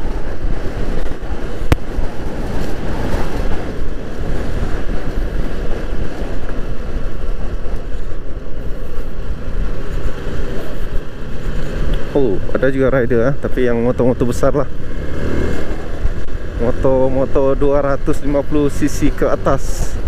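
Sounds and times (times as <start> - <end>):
scooter engine running: 0.0 - 12.6
wind buffeting microphone: 0.0 - 20.0.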